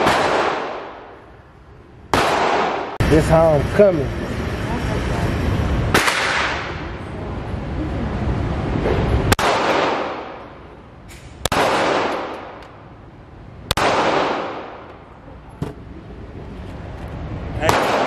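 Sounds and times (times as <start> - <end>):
pistol shots echoing indoors: 0.0 - 1.1, 2.1 - 3.0, 9.3 - 10.4, 11.4 - 12.6, 13.7 - 14.8.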